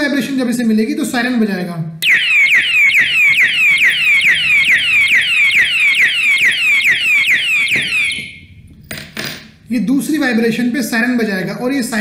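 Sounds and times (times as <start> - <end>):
alarm siren whooping: 2.0 - 8.6.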